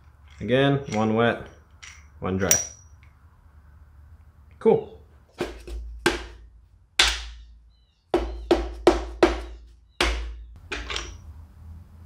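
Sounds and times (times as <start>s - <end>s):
rubber mallet knocking on metal: 8.2s - 10.4s.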